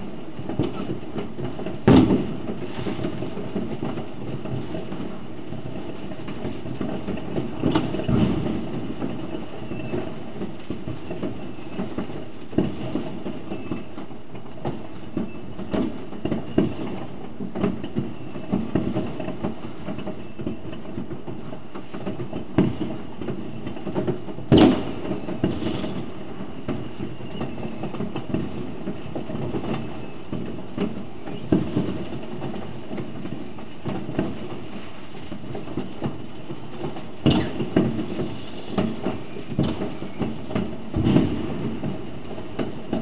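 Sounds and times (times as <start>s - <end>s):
distant fireworks bangs and crackles: 0.0s - 43.0s
loud sharp bang: 1.9s - 3.2s, 7.6s - 8.8s, 24.5s - 26.1s, 37.2s - 42.0s.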